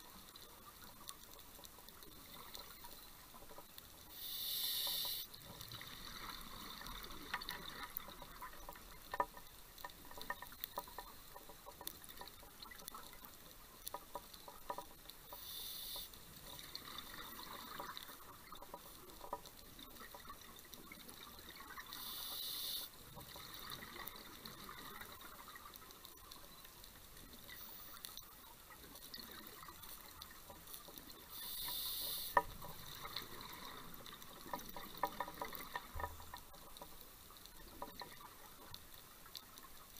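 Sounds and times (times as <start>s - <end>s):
regulator hissing inhale: 4.1s - 5.3s, 15.4s - 16.1s, 22.0s - 22.9s, 31.3s - 32.4s.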